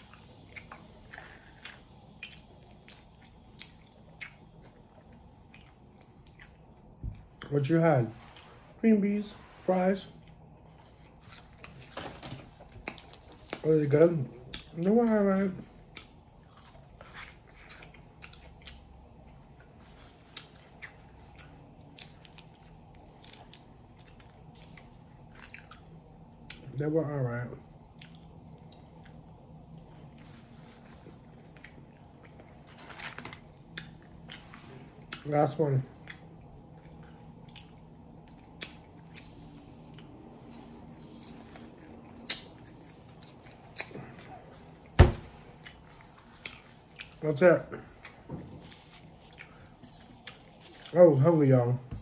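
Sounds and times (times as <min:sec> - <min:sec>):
chewing crunchy food: 0:00.0 - 0:07.5, 0:15.6 - 0:26.8, 0:27.6 - 0:51.0.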